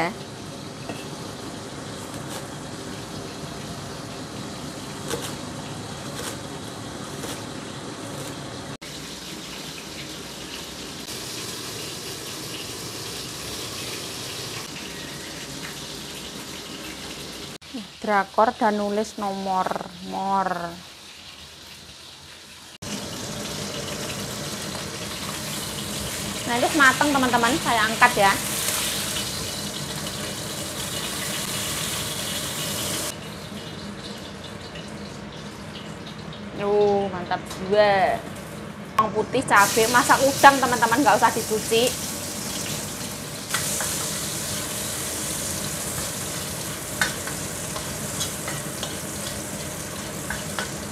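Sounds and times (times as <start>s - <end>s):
fish sizzling in hot oil: 8.8s - 36.4s, 39.5s - 50.9s.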